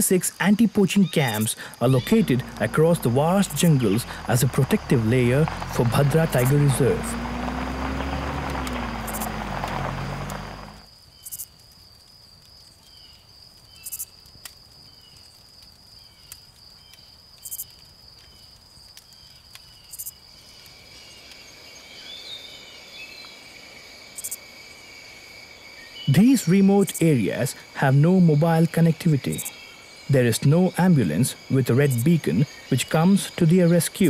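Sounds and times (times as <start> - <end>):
lower insect tone: 0.0 - 34.0
faint chirps: 0.8 - 11.4
jeep engine running: 1.8 - 10.9
high-pitched insect drone: 6.0 - 10.5.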